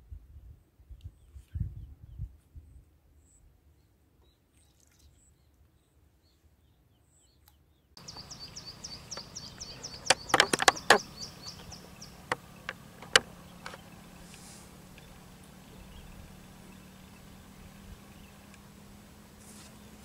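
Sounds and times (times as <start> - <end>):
outdoor ambience: 0.0 - 20.0
bird chirping: 3.2 - 20.0
sharp clicks and knocks: 10.0 - 11.1, 12.2 - 13.8.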